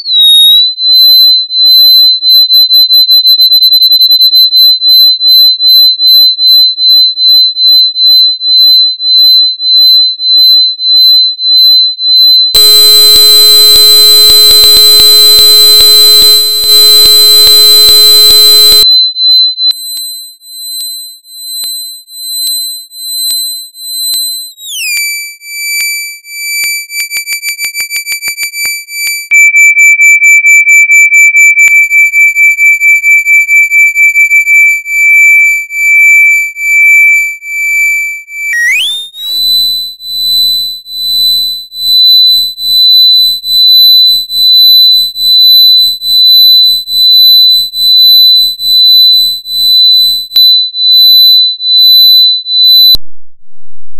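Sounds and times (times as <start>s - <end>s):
pulsing sine tone: 12.6s - 18.9s, 38.5s - 51.2s.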